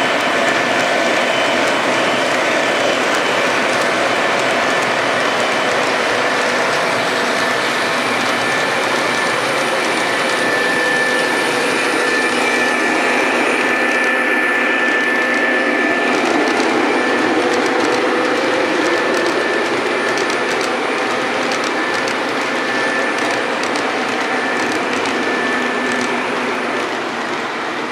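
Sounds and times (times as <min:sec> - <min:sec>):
model train wheels and motors rumbling: 0:00.0 - 0:27.9
thin high tone: 0:05.5 - 0:27.4.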